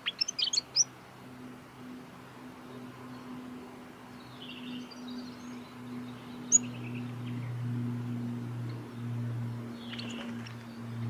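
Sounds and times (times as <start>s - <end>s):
bird chirping: 0.0s - 0.9s, 4.0s - 7.8s, 8.7s - 11.0s
steady low hum: 0.0s - 11.0s.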